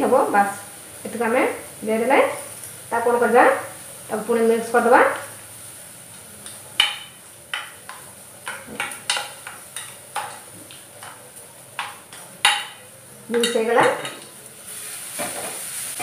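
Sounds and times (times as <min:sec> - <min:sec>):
carrots sizzling: 0:00.0 - 0:16.0
spoon knocking and scraping pan: 0:06.4 - 0:14.3, 0:15.2 - 0:15.6.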